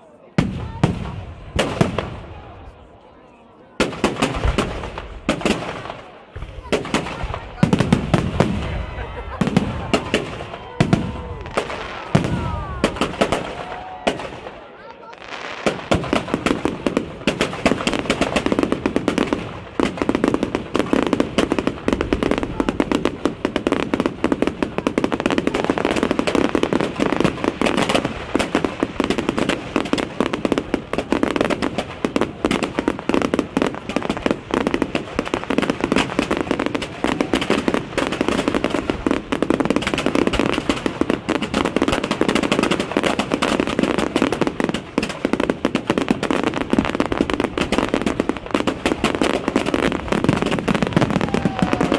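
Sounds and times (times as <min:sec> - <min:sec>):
fireworks bangs and crackles: 0:00.0 - 0:51.9.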